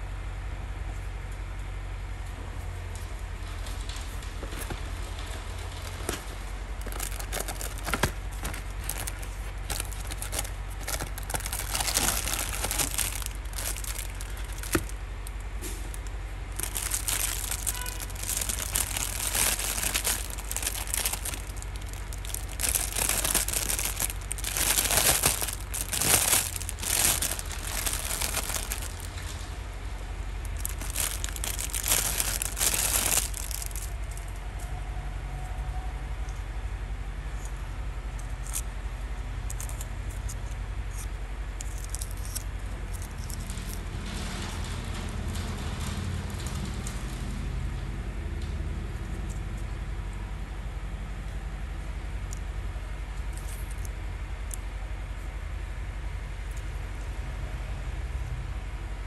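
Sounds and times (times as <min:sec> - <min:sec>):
plastic bag crinkling: 0:05.6 - 0:29.5, 0:30.4 - 0:34.2.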